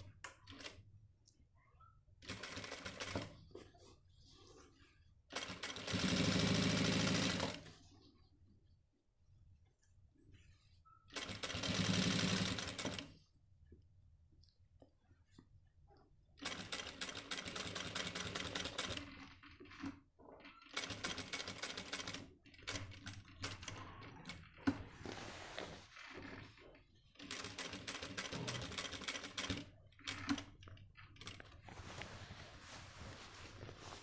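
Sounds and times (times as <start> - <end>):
sewing machine stitching: 2.2 - 3.3, 5.3 - 7.6, 11.1 - 13.1, 16.4 - 25.0, 25.8 - 31.6.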